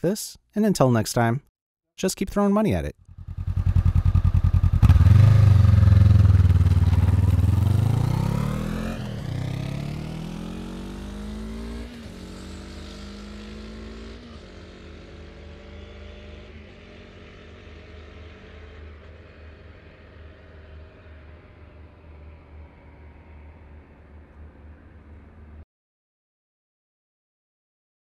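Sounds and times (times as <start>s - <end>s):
motorcycle accelerating through gears: 3.1s - 25.5s.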